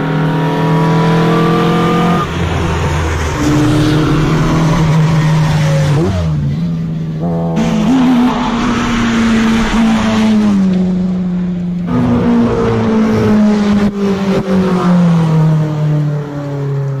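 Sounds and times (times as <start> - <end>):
rally car engine at high revs: 0.0 - 17.0.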